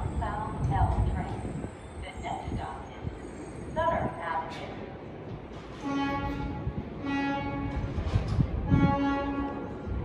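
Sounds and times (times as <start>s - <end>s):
train rumbling on track: 0.0s - 10.0s
subway train horn blast: 5.7s - 10.0s.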